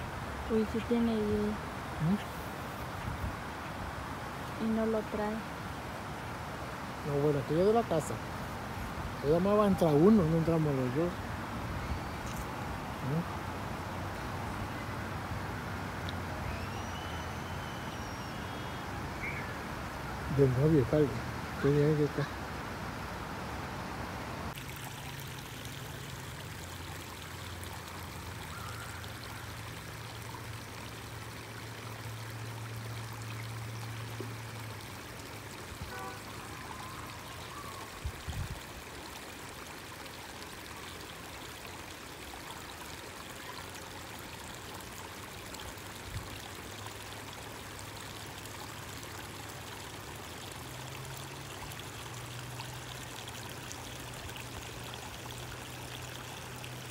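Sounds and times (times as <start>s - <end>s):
stream running over rocks: 0.0s - 56.9s.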